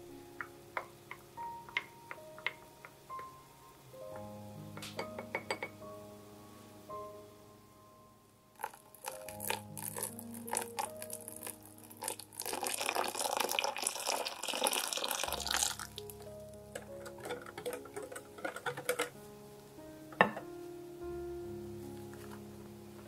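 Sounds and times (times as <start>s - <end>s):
liquid pouring into bowl: 8.6s - 16.2s
whisk clicking against bowl: 17.0s - 19.1s.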